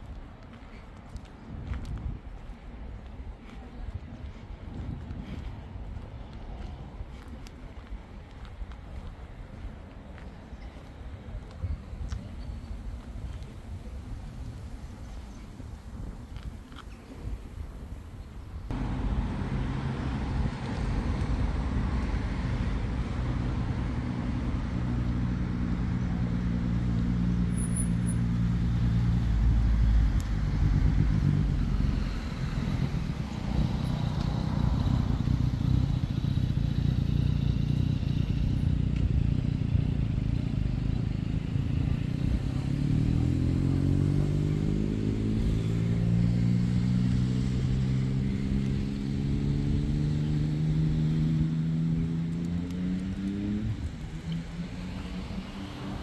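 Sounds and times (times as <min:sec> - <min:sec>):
vehicle engine running: 0:18.7 - 0:27.6
engine speeding up: 0:18.7 - 0:38.6, 0:41.4 - 0:56.0.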